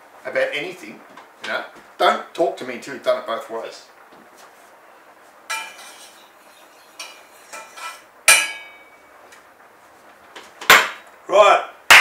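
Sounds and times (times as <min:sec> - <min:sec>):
ringing metal clang: 0:05.5 - 0:06.2, 0:07.0 - 0:09.0
saucepans and lids clinking: 0:05.5 - 0:08.9.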